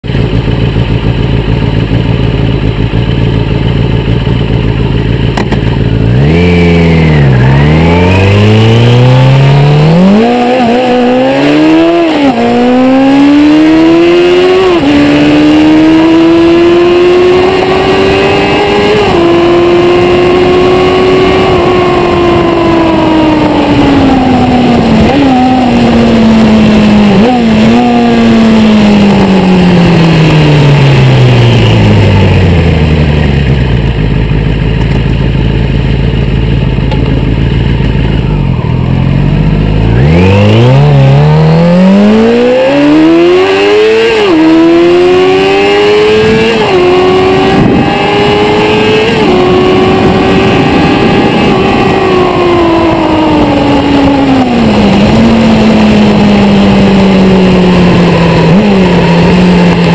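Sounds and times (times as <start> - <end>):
motorcycle engine accelerating: 0.0 - 59.9
wind rush: 39.4 - 59.9.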